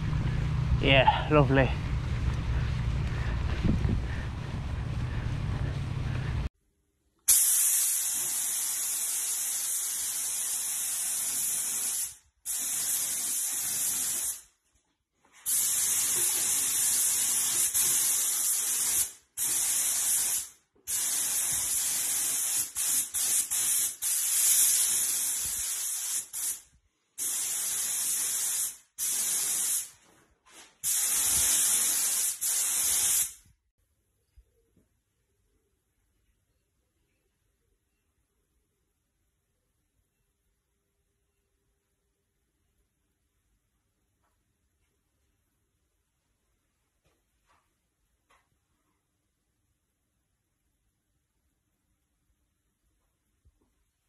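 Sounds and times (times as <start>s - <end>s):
paint spray gun hissing: 7.3s - 14.4s, 15.5s - 26.6s, 27.2s - 29.9s, 30.8s - 33.4s.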